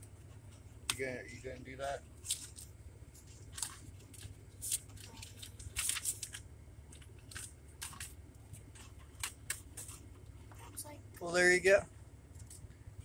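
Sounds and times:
steady low hum: 0.0s - 13.0s
paper rustling and crinkling: 2.2s - 10.8s.

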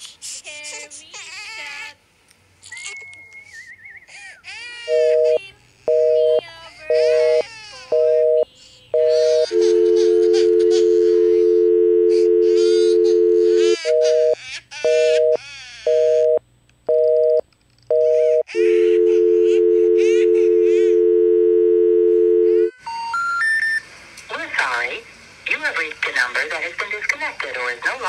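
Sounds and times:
person crying and wailing: 4.1s - 16.2s, 18.2s - 21.0s
busy signal beeps: 4.9s - 22.7s
telephone dial tone: 4.9s - 22.7s.

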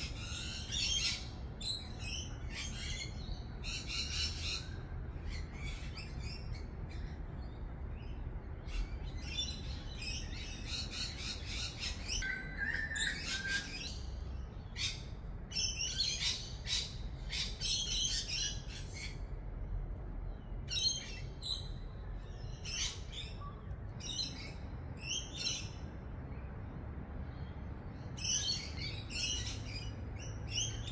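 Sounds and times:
birds chirping: 0.0s - 30.9s.

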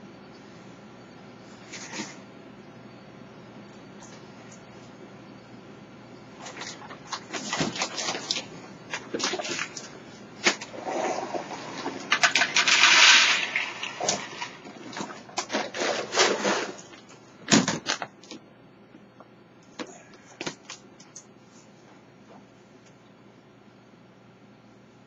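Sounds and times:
kibble rattling into dishes: 11.8s - 16.9s.

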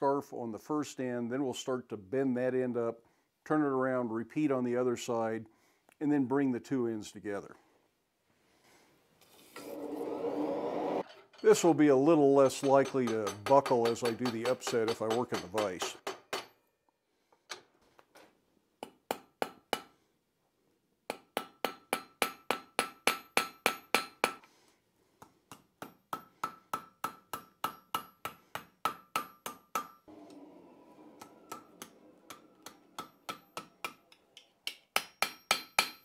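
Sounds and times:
hammer striking hot steel on anvil: 12.6s - 16.6s, 21.1s - 24.4s, 25.5s - 30.0s, 31.2s - 36.0s
anvil ringing: 31.2s - 34.2s, 35.0s - 36.0s.

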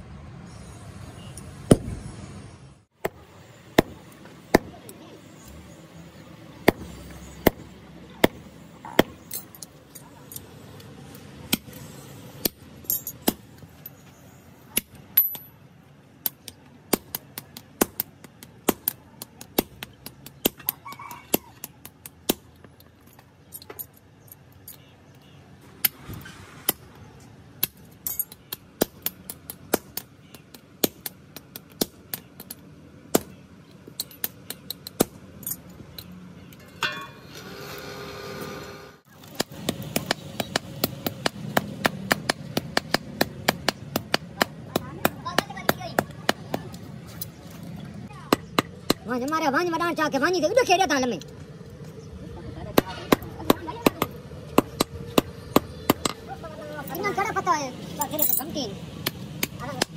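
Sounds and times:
hammer striking metal on anvil: 36.8s - 37.4s.

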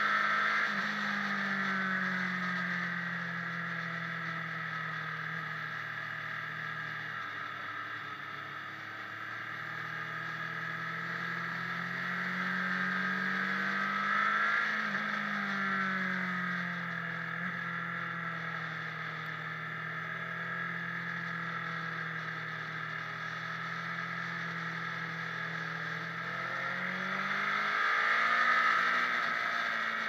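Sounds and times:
motorcycle engine revving: 0.0s - 30.0s.

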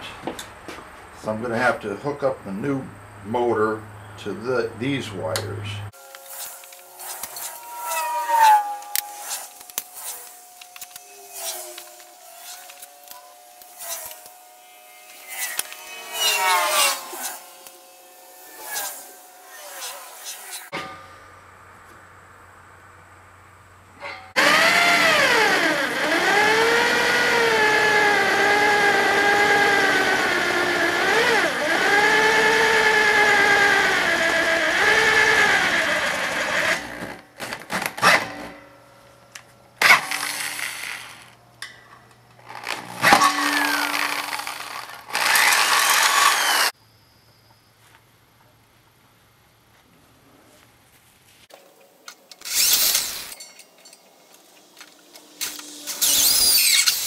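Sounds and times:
electric drill cutting metal: 6.0s - 20.8s, 24.1s - 37.2s, 39.8s - 41.4s, 42.4s - 46.8s, 52.4s - 54.0s, 54.9s - 57.0s.

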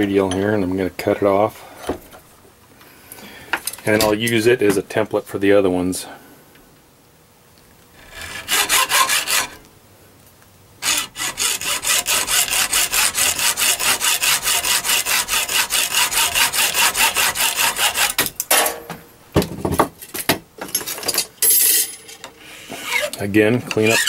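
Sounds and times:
hacksaw cutting metal rod: 8.0s - 9.6s, 10.8s - 18.3s, 22.8s - 24.0s.

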